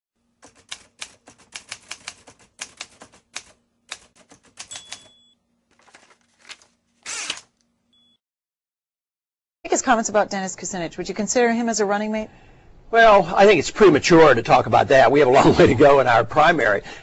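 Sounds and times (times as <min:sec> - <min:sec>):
typewriter carriage scraping: 0:00.4 - 0:05.2, 0:05.8 - 0:07.5
typewriter keys clacking: 0:00.4 - 0:05.2
typewriter bell ding: 0:04.6 - 0:05.4.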